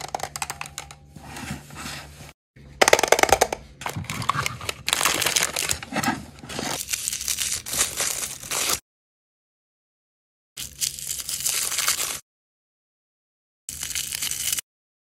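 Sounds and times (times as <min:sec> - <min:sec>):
foil bag crinkling: 0:03.8 - 0:08.8.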